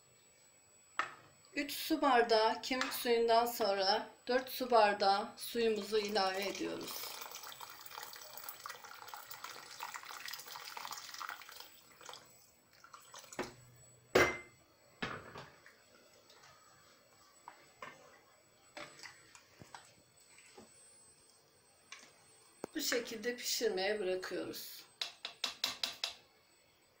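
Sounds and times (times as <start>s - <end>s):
water pouring into a pot: 5.8s - 13.6s.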